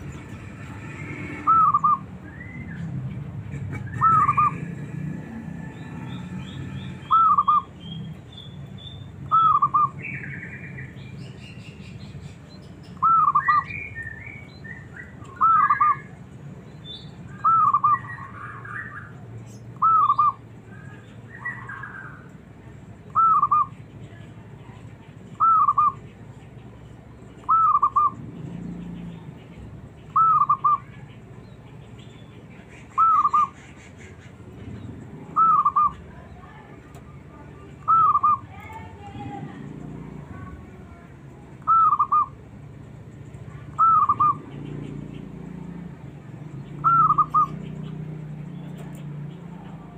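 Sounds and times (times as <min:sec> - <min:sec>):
dove cooing: 0:00.0 - 0:02.1, 0:03.5 - 0:05.0, 0:05.9 - 0:07.7, 0:27.4 - 0:28.7, 0:30.1 - 0:31.0, 0:35.3 - 0:36.1, 0:41.6 - 0:42.3, 0:43.7 - 0:44.4, 0:46.8 - 0:47.6
small birds chirping: 0:00.0 - 0:49.9.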